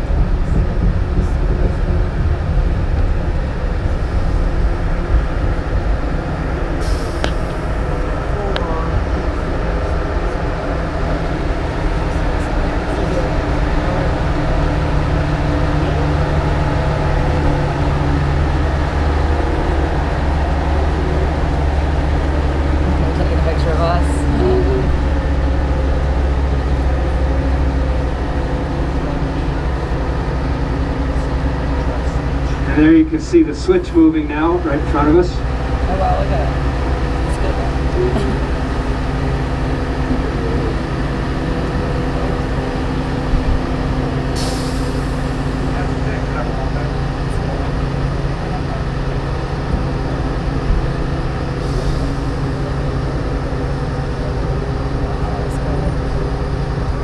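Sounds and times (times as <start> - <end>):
diesel engine idling: 0.0 - 57.0
train rolling by with low hum: 0.0 - 57.0.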